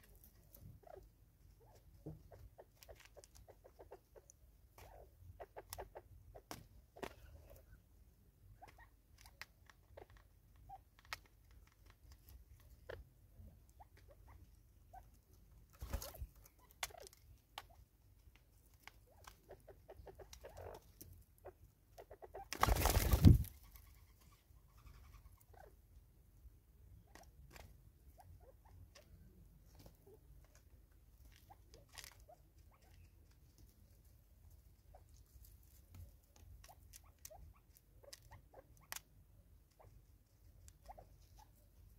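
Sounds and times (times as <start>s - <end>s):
rustling in dry leaves: 22.7s - 23.6s.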